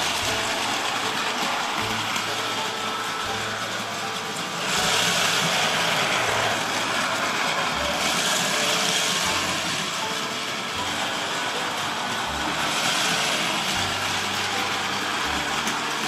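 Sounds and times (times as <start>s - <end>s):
plastic wheels rattling: 0.0s - 16.0s
toy train motors whirring: 0.0s - 16.0s.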